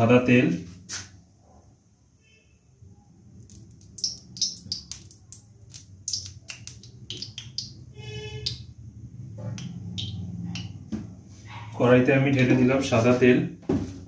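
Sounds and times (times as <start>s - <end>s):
oil pouring into pan: 3.4s - 7.8s
oil crackling in pan: 3.4s - 8.6s.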